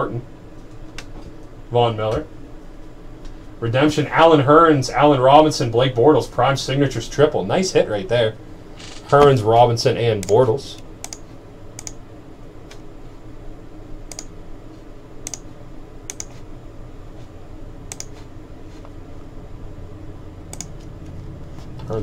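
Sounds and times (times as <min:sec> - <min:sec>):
low room hum: 0:00.0 - 0:22.0
sharp light clicks: 0:10.2 - 0:10.4, 0:11.8 - 0:12.0, 0:14.1 - 0:14.3, 0:16.1 - 0:16.3.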